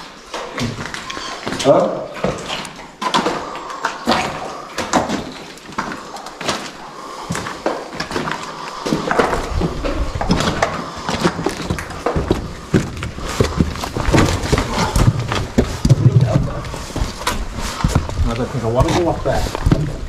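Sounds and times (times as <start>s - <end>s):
footsteps on a hard floor: 5.1s - 20.0s.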